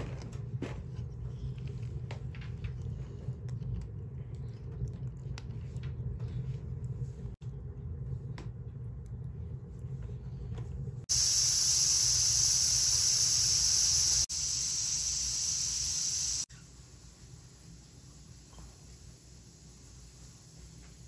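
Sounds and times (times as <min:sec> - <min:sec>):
low steady rumble: 0:00.0 - 0:11.1
pressure cooker steam hissing: 0:11.1 - 0:21.0.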